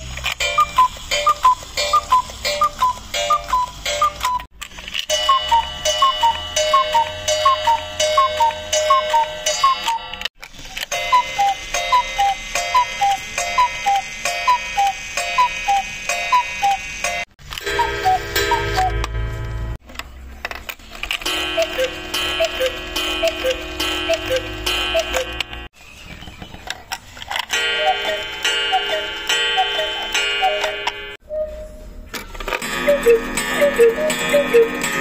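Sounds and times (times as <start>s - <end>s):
cuckoo clocks calling: 0.0s - 19.2s, 20.7s - 31.8s, 32.5s - 35.0s
cuckoo clock mechanical click: 0.2s - 19.2s, 21.0s - 25.6s, 27.3s - 31.0s.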